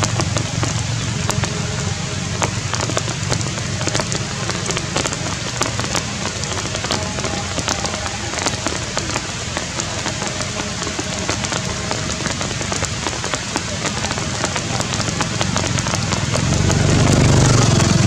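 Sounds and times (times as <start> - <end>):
raindrop impacts: 0.0 - 18.0
steady rain hiss: 0.0 - 18.0.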